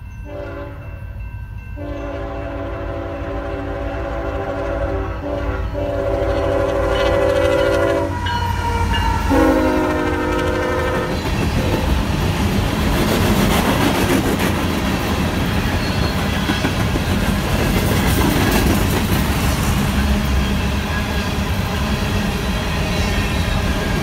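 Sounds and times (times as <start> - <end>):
locomotive air horn blowing: 0.2 - 0.9, 1.8 - 11.8
rumble of rolling hopper cars: 2.7 - 24.0
wheels clacking over rail joints: 11.0 - 21.4.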